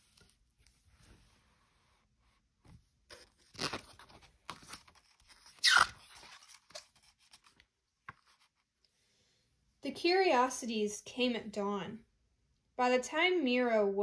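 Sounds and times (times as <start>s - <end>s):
book pages rustling: 0.0s - 8.8s.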